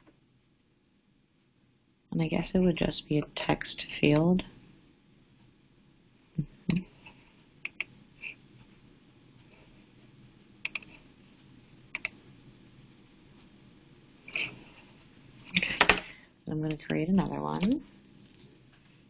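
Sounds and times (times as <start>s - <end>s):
computer mouse clicks: 7.6s - 7.9s, 10.6s - 11.0s, 11.9s - 12.2s.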